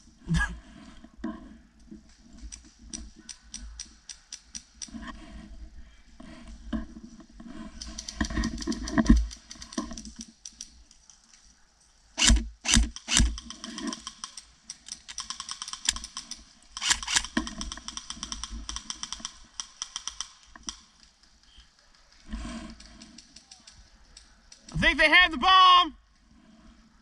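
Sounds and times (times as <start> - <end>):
airsoft rifle rapid fire: 12.2 - 14.3, 15.1 - 20.4.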